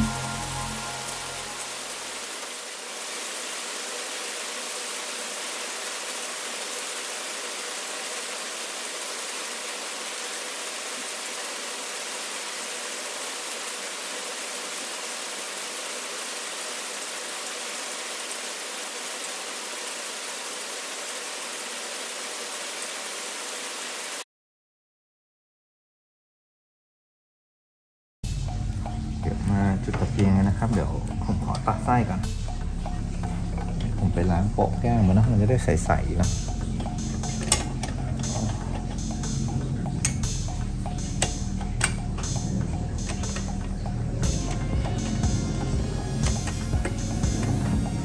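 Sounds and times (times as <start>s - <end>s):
steady rain falling: 0.0s - 24.2s.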